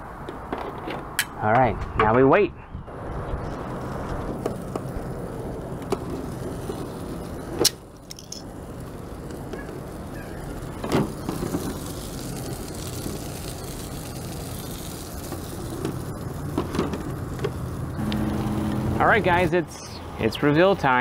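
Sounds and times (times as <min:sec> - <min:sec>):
low hum and rumble: 0:14.0 - 0:20.2.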